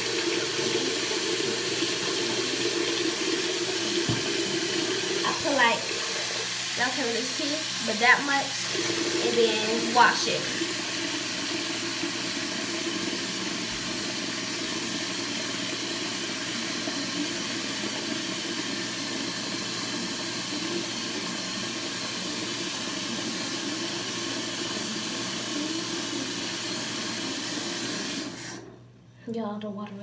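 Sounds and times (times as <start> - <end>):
tap water running onto hair: 0.0 - 28.7.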